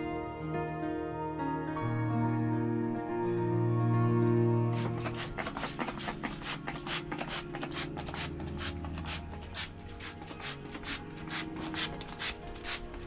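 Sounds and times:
spray bottle squirts: 0:04.7 - 0:13.0.

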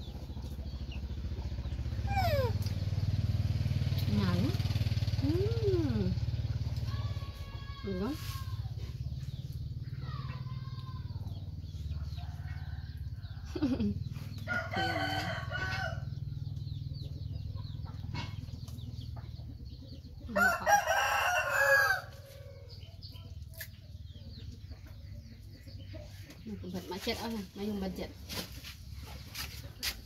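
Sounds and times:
rooster crowing: 0:14.4 - 0:16.2, 0:20.3 - 0:22.8.

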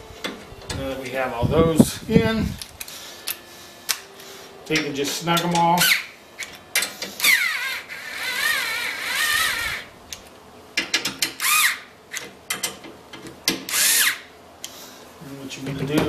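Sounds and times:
ratchet driver clicking: 0:04.7 - 0:14.2.

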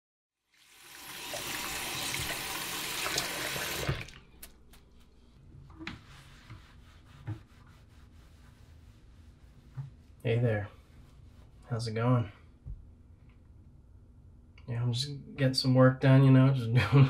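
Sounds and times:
water running from faucet: 0:00.5 - 0:04.2.

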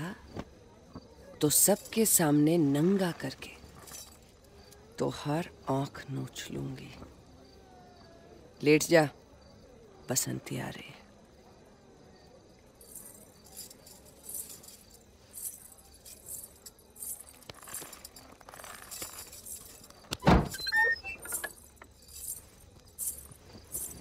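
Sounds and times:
metal jewellery jingling: 0:01.2 - 0:05.0, 0:12.7 - 0:24.0
brief squeaks: 0:20.1 - 0:21.6.

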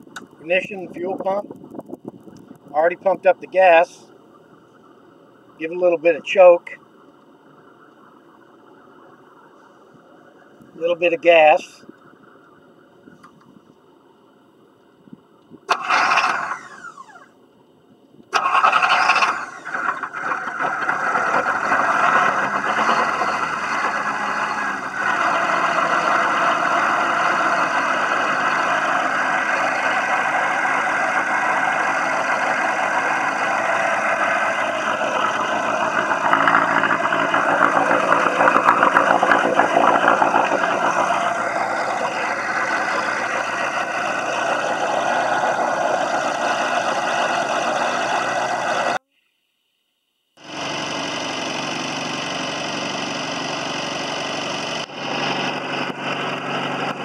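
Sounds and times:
boat engine starting and running: 0:00.0 - 0:09.7, 0:15.6 - 0:17.4, 0:18.3 - 0:49.0, 0:50.4 - 0:57.0.

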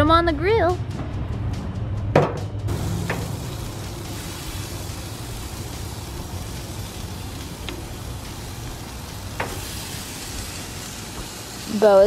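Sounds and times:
chicken sizzling on a grill: 0:02.7 - 0:12.0.

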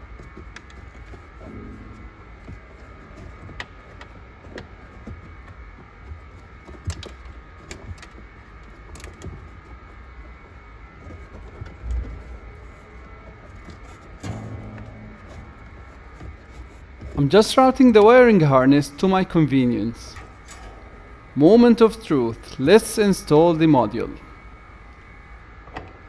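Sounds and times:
steady hum: 0:00.0 - 0:09.3, 0:10.2 - 0:26.0
sharp clicks and light knocks: 0:00.2 - 0:21.4
heavy dull thump: 0:01.4 - 0:03.7, 0:14.2 - 0:17.4.

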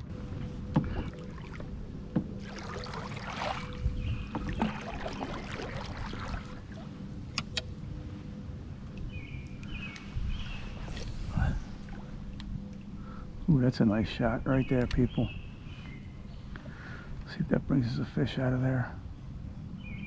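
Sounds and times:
water splashing with paddle strokes: 0:00.2 - 0:07.6
knocks against canoe hull: 0:04.3 - 0:05.1.

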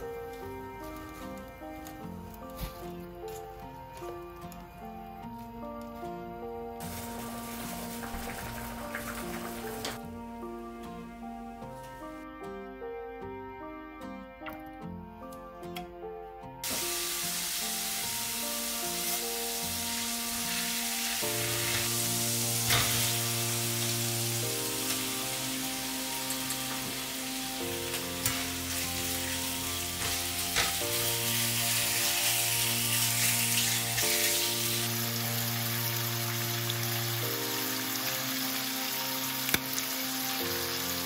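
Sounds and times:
background music: 0:00.0 - 0:41.0
food sizzling in frying pan: 0:06.8 - 0:10.0, 0:16.6 - 0:41.0.

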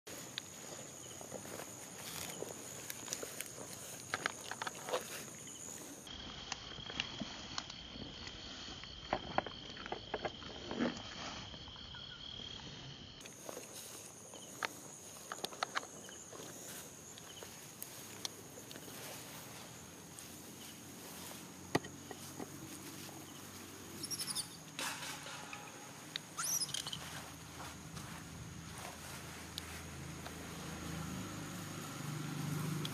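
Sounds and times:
monkeys rustling in grass: 0:00.1 - 0:06.1, 0:13.3 - 0:21.6, 0:22.2 - 0:31.0
insect trill: 0:00.1 - 0:32.9
monkey squeaks: 0:24.0 - 0:24.7, 0:26.3 - 0:27.1.

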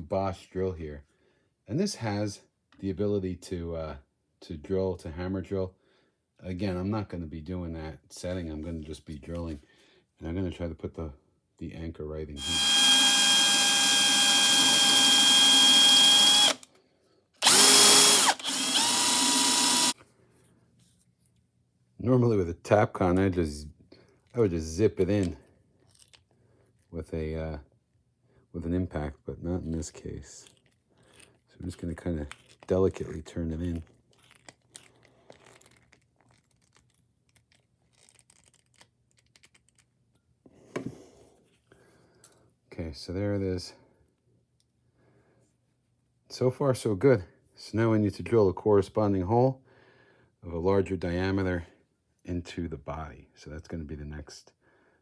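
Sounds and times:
drill motor whining: 0:12.4 - 0:16.7, 0:17.4 - 0:20.0
screw turned by screwdriver: 0:17.4 - 0:20.0.

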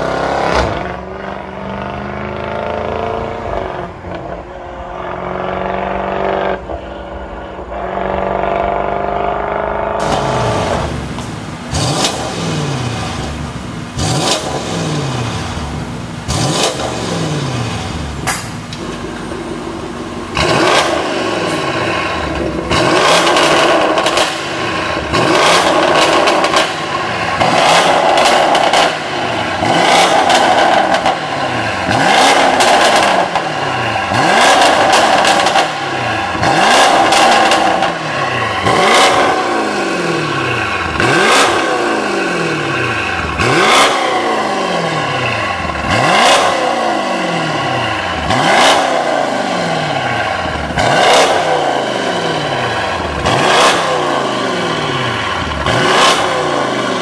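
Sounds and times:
car engine revving: 0:00.0 - 0:57.0
sharp exhaust cracks: 0:18.2 - 0:57.0.

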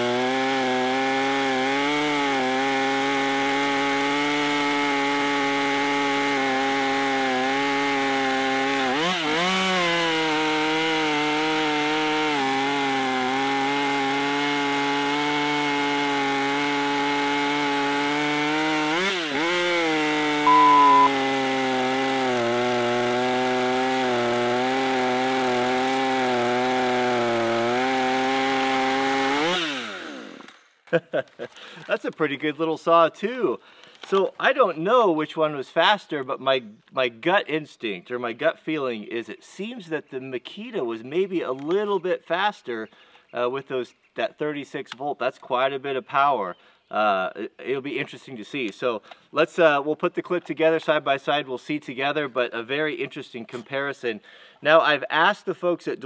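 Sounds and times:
chainsaw cutting wood: 0:00.0 - 0:31.9
short steady beep: 0:20.5 - 0:21.2.

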